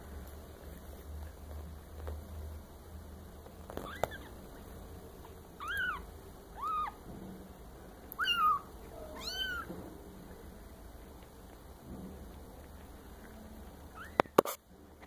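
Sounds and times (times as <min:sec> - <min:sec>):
kitten mewing: 0:05.6 - 0:07.0, 0:08.2 - 0:09.7.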